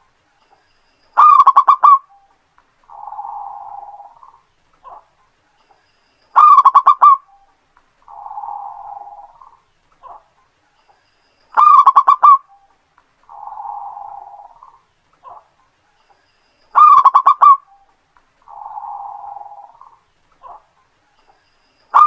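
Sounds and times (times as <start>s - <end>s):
dove cooing: 1.2s - 2.2s, 2.9s - 5.1s, 6.4s - 7.4s, 8.1s - 10.3s, 11.6s - 12.6s, 13.3s - 15.5s, 16.8s - 17.9s, 18.5s - 20.7s.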